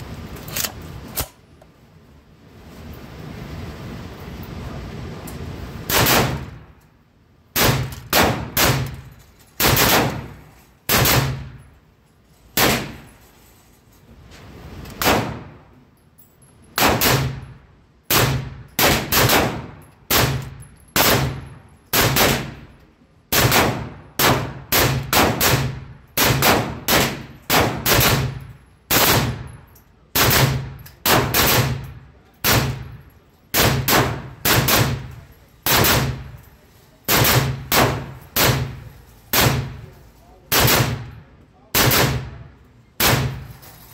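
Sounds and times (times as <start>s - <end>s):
rifle gunshots indoors: 5.8s - 6.7s, 7.5s - 9.0s, 9.6s - 11.7s, 12.6s - 13.1s, 14.9s - 15.7s, 16.8s - 22.7s, 23.3s - 36.4s, 37.1s - 39.9s, 40.5s - 41.2s, 41.8s - 43.5s.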